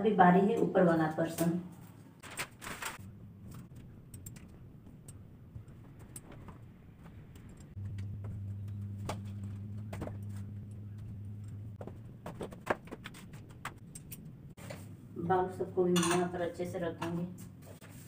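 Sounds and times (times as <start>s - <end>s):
low steady hum: 3.0s - 17.2s.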